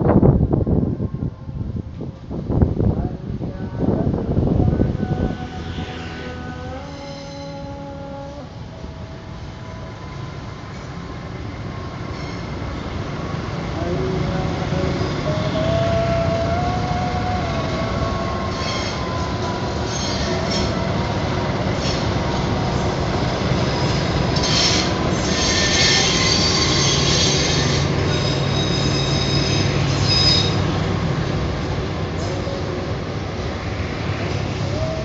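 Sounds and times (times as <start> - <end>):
train engine and rail rumble: 0.0 - 35.0
train wheels squealing on rails: 5.3 - 13.4, 17.4 - 31.2.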